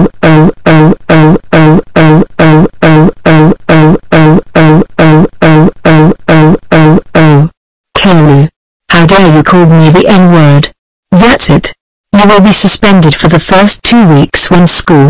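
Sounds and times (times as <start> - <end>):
looped shouted voice clip: 0.0 - 11.6.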